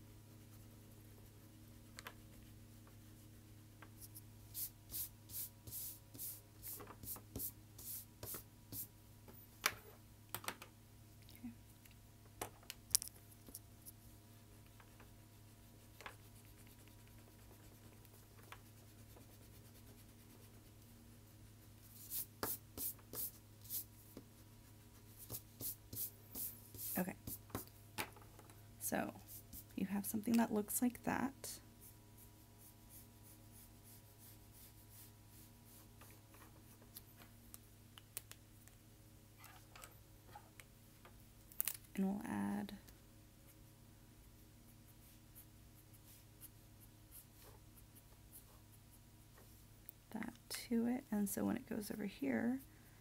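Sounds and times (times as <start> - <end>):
pencil scratching on paper: 4.0 - 8.9, 15.0 - 20.9, 21.5 - 27.6.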